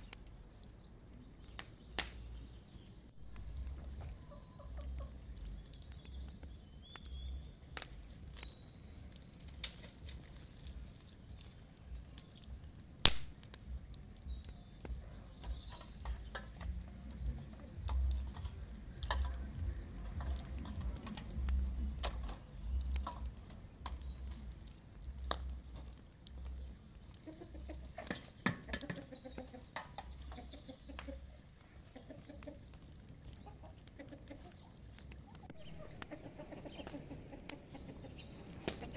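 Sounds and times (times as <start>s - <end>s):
wood fire crackling: 0.0s - 38.9s
chickens clucking: 3.5s - 5.8s, 15.0s - 24.0s, 26.9s - 38.9s.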